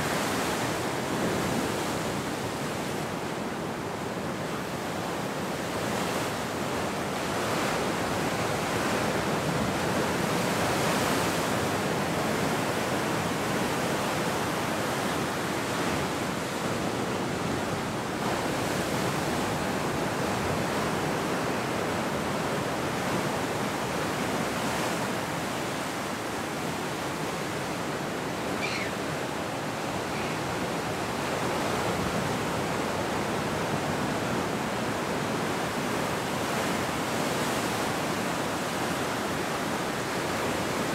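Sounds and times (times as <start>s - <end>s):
ocean surf breaking on rocks: 0.0s - 40.9s.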